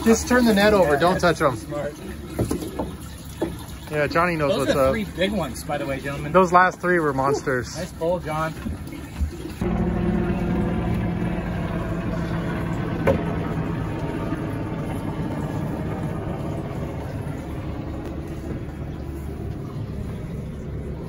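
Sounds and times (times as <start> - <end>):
boat engine idling: 0.0 - 21.0.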